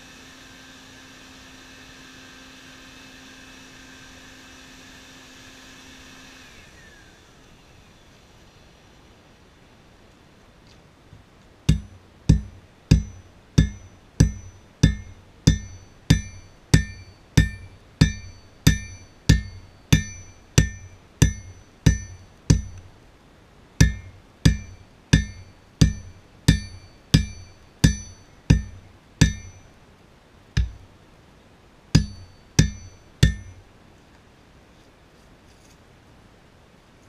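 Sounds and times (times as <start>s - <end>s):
hammer ringing on anvil: 11.7s - 22.8s, 23.8s - 29.7s, 32.0s - 33.6s.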